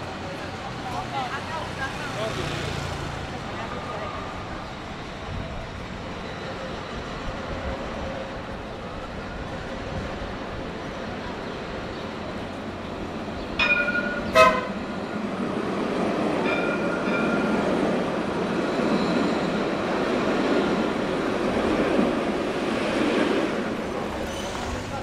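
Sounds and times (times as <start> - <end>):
steel wheels rumbling on rails: 0.0 - 25.0
tram horn toots: 14.0 - 15.1.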